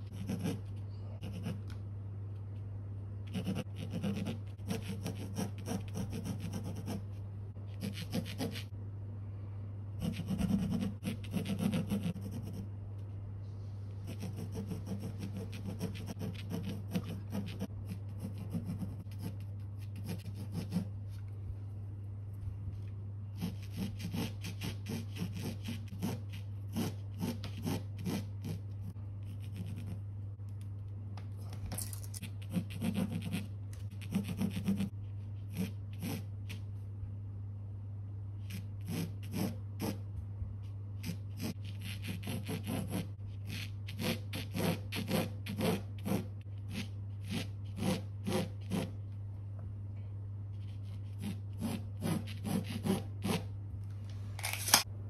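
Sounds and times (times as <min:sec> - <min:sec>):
pencil scratching on canvas: 0:00.0 - 0:01.7, 0:03.3 - 0:08.7, 0:10.0 - 0:12.7, 0:14.0 - 0:20.9, 0:23.3 - 0:30.0, 0:32.2 - 0:36.6, 0:38.4 - 0:40.0, 0:41.0 - 0:49.0, 0:50.6 - 0:53.5
steady low hum: 0:00.0 - 0:55.0.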